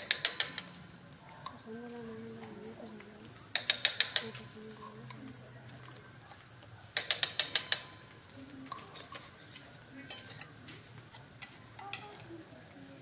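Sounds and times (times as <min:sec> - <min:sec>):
crickets chirping: 0:00.0 - 0:13.0
small metal utensils clinking: 0:07.0 - 0:12.4.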